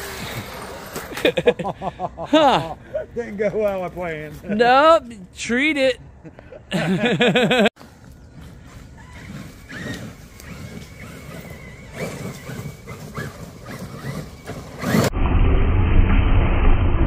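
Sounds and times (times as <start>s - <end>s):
electric motor whining: 0.0s - 1.3s, 8.2s - 15.1s
loud low rumble: 15.1s - 17.0s.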